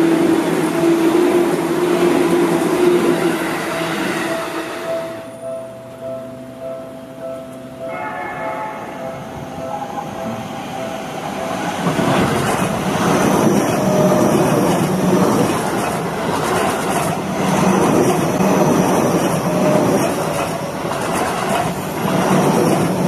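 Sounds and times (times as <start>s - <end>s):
train wheels rumbling on rails: 9.4s - 23.0s.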